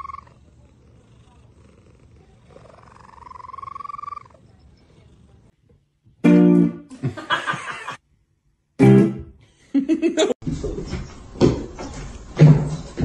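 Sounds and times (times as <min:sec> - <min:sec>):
cat purring: 0:00.0 - 0:05.6.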